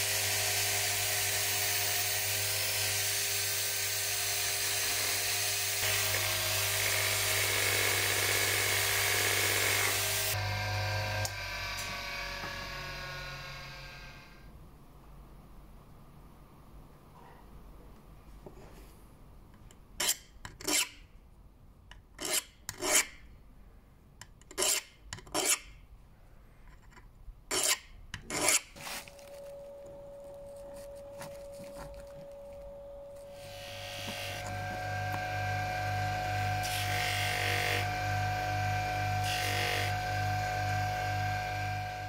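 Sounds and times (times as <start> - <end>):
bench grinder motor hum: 0.0 - 14.4, 33.2 - 42.0
screw rasping on metal file: 20.0 - 21.0, 22.2 - 23.2, 24.5 - 25.7, 26.7 - 28.8.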